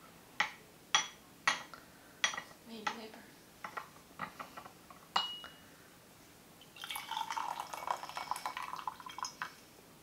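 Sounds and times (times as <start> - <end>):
tea pouring into glass pitcher: 6.6 - 9.6.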